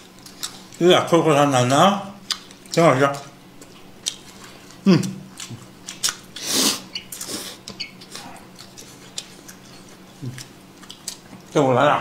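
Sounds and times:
wet chewing smacks: 0:03.6 - 0:06.4, 0:07.0 - 0:11.6.

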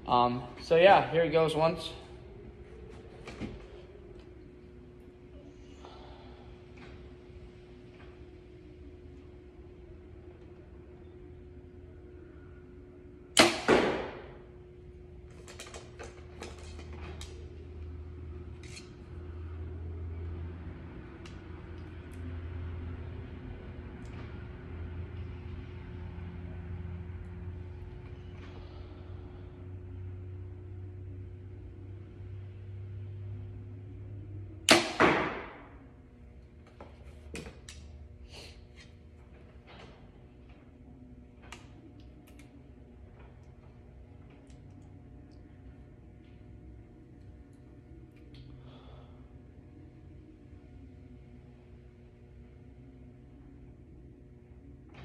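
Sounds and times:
arrow hitting target: 0:13.4 - 0:14.4, 0:34.7 - 0:35.8.

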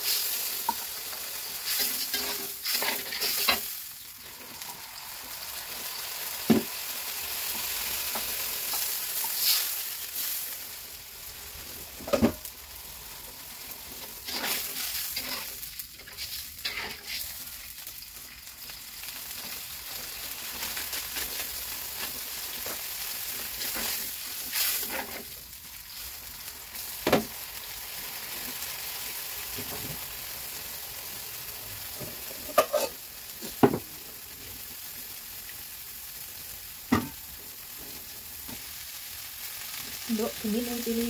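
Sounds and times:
oil sizzling in a wok: 0:00.0 - 0:41.0
spatula stirring: 0:01.6 - 0:03.7, 0:13.5 - 0:17.4.

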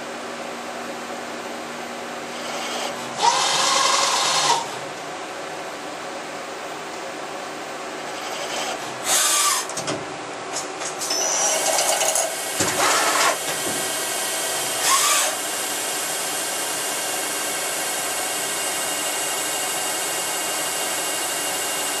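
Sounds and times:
noisy machining bursts: 0:02.3 - 0:04.8, 0:08.1 - 0:09.8, 0:11.0 - 0:22.0.

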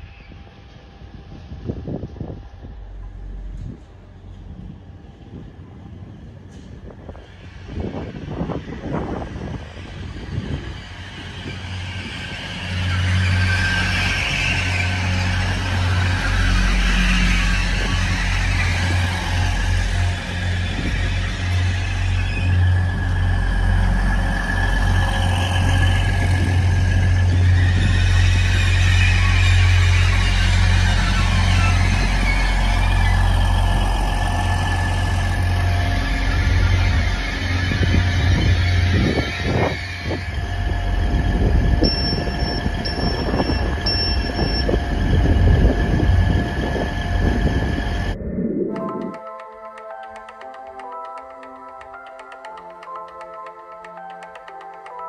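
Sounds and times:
train diesel engine humming: 0:00.0 - 0:48.3
short high-pitched beeps: 0:41.8 - 0:44.8.

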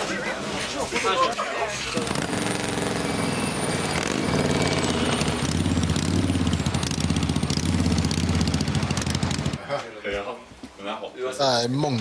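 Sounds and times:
motorcycle engine chugging: 0:02.0 - 0:09.6.

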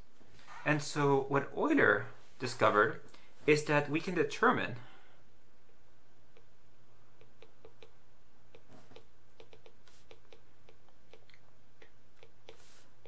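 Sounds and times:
steady low hum: 0:00.0 - 0:13.0
stylus tapping on tablet: 0:07.2 - 0:12.7.

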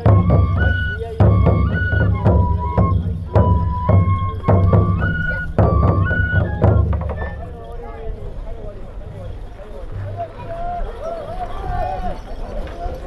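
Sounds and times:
drum strokes: 0:00.0 - 0:07.6
high flute melody: 0:00.0 - 0:08.0.

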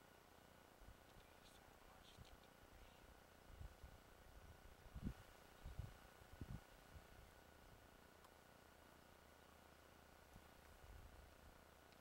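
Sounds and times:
faint low microphone thumps: 0:03.5 - 0:06.6.

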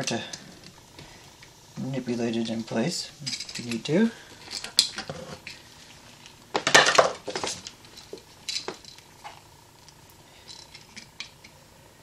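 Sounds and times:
metal clattering and rustling: 0:02.5 - 0:05.7.

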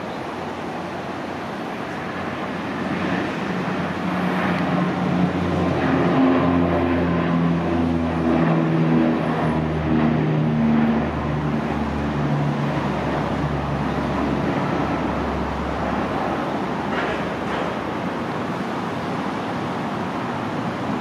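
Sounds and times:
turboprop aircraft propeller drone: 0:00.0 - 0:21.0.

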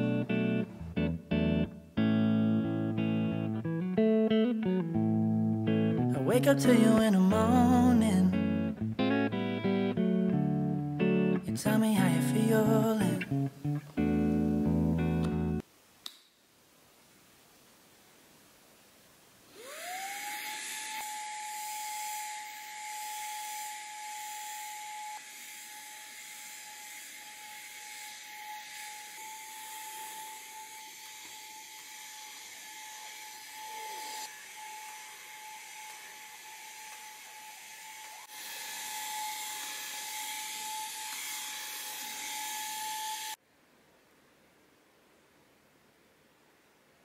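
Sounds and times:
suction hiss: 0:19.5 - 0:43.4
vacuum cleaner motor whine: 0:19.5 - 0:43.4.

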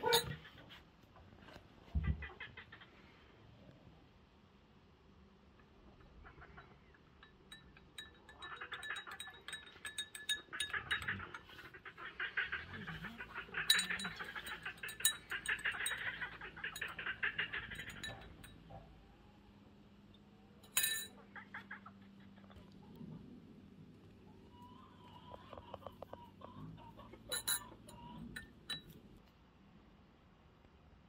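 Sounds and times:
spoons clinking against glass: 0:07.2 - 0:11.5, 0:13.6 - 0:18.6, 0:20.6 - 0:21.1, 0:27.2 - 0:29.0.

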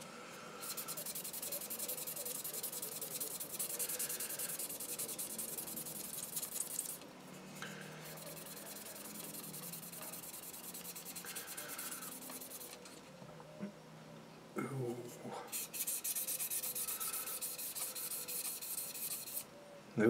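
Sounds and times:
sanding stick scratching plastic: 0:00.6 - 0:07.0, 0:07.9 - 0:12.8, 0:15.5 - 0:19.5.

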